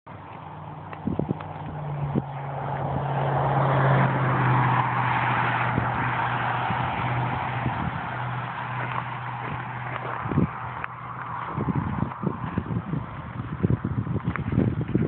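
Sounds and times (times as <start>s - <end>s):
vehicle engine running: 0.1s - 15.0s.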